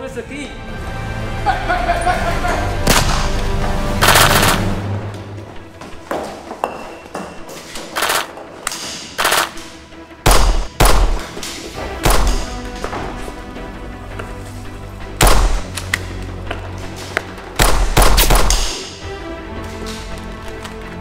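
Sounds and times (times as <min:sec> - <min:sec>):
background music: 0:00.0 - 0:21.0
handgun shots: 0:02.9 - 0:03.4, 0:04.0 - 0:04.7, 0:08.0 - 0:09.7, 0:10.3 - 0:11.4, 0:12.0 - 0:12.6, 0:15.2 - 0:16.0, 0:17.6 - 0:19.0.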